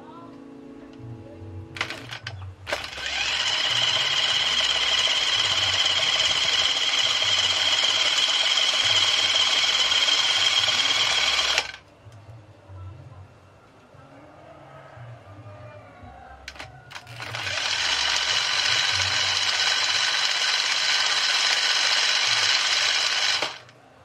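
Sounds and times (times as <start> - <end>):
electric motor whining: 1.8 - 11.8, 16.5 - 23.7.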